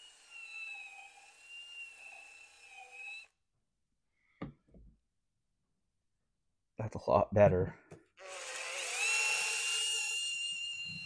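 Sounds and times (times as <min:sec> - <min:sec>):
cordless drill whining: 0:00.0 - 0:03.4, 0:08.2 - 0:11.0.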